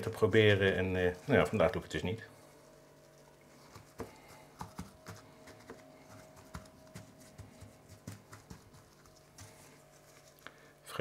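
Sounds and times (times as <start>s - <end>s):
gloved hand patting meat: 3.0s - 10.6s.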